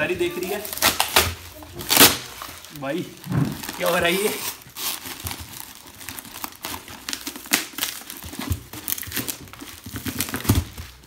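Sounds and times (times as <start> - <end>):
newspaper crumpling: 0.0 - 11.0
cardboard box tearing: 3.5 - 10.9.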